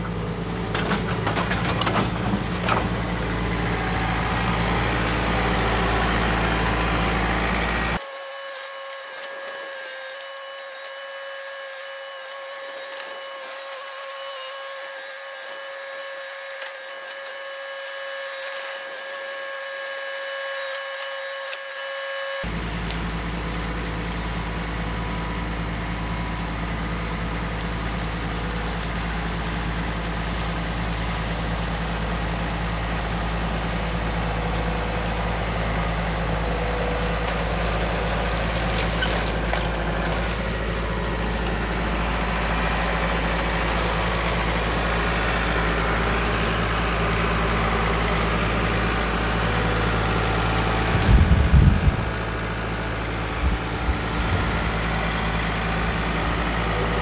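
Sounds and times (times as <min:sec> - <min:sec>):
tractor diesel engine running: 0:00.0 - 0:08.0, 0:22.4 - 0:57.0
high-pitched electronic whine: 0:07.8 - 0:22.5.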